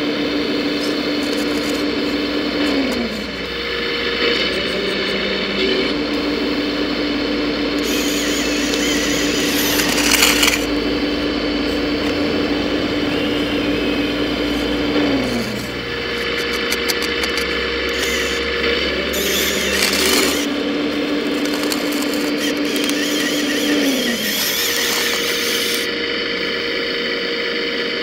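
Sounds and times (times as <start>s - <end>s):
hydraulic pump whining: 0.0s - 28.0s
gravel scraping: 7.7s - 26.0s
clicks: 14.5s - 25.9s.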